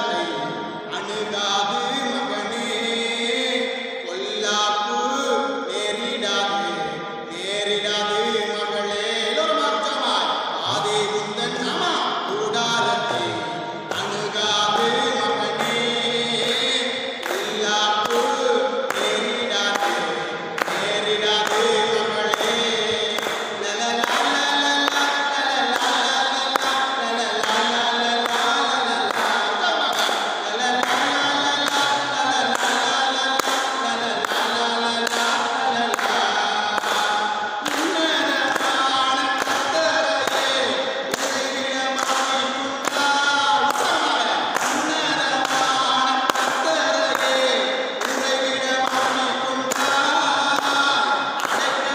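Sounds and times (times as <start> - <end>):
man singing a hymn: 0.0 - 51.9.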